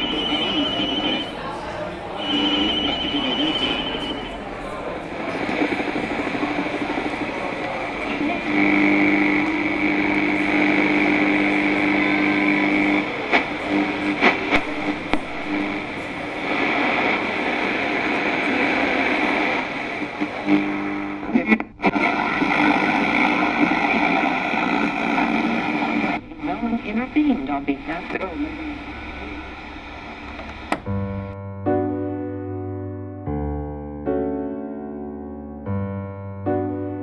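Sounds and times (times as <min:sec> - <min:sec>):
electronic static noise: 0:00.0 - 0:01.4, 0:02.1 - 0:04.4, 0:05.0 - 0:31.4
steady electrical hum: 0:00.0 - 0:31.4.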